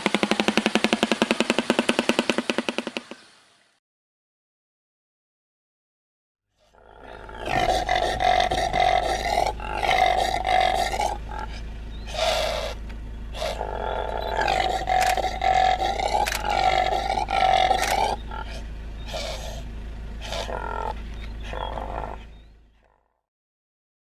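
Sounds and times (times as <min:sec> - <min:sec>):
hoarse animal roaring calls: 0:06.6 - 0:23.1.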